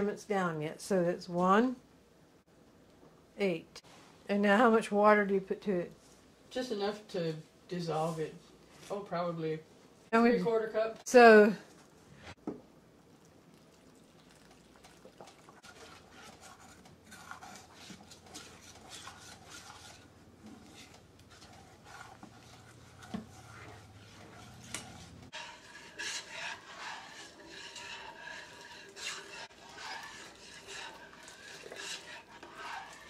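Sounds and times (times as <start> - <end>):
metal spoon scraping steel bowl: 15.6 - 33.0.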